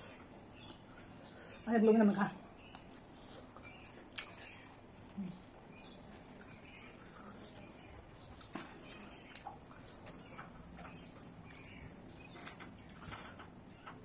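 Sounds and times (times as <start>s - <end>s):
person chewing: 2.6s - 13.1s.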